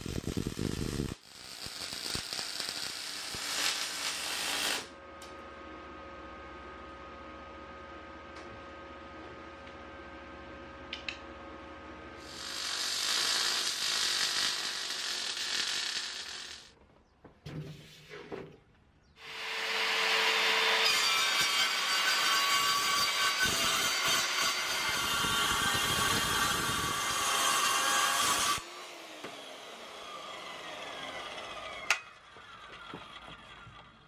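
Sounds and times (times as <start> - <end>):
circular saw cutting: 0.0 - 4.9, 12.2 - 16.7, 19.2 - 33.5
welding sizzle: 0.0 - 5.0, 12.2 - 16.7, 19.2 - 28.6.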